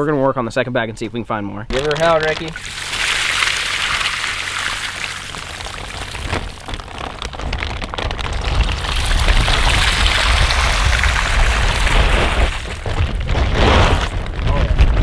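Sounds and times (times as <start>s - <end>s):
water splashing onto grass: 1.7s - 13.4s
water pouring onto grass: 1.7s - 14.2s.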